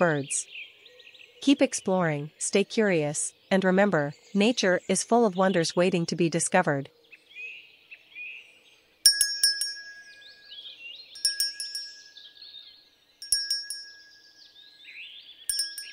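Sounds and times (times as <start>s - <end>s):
faint birdsong chirps: 0.0s - 15.9s
bright chime: 9.1s - 10.6s, 11.2s - 12.4s, 13.2s - 14.6s, 15.5s - 15.9s.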